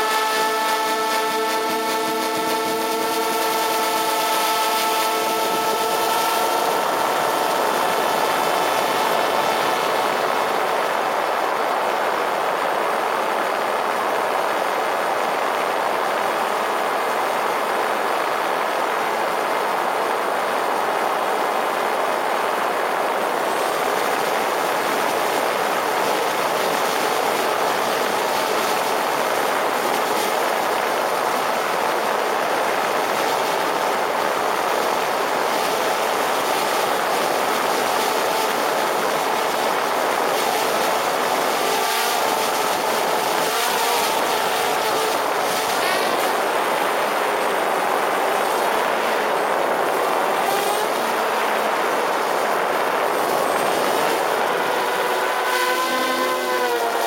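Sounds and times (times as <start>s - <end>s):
drone propellers buzzing: 0.0s - 10.8s, 35.6s - 57.0s.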